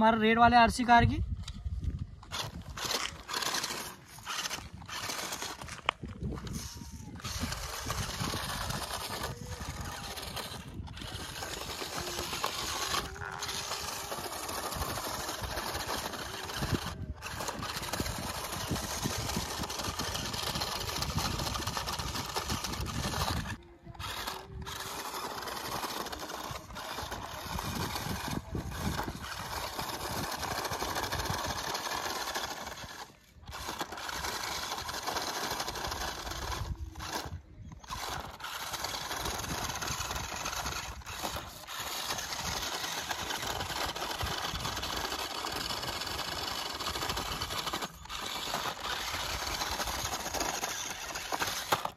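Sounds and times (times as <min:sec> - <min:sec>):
toy car motor whining: 0:00.0 - 0:51.9
tyres crunching over gravel: 0:02.2 - 0:06.6.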